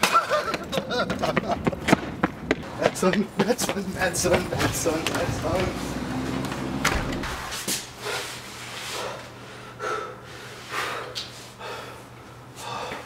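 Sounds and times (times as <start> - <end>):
door shutting: 4.6 - 7.7
man panting heavily: 8.0 - 13.0.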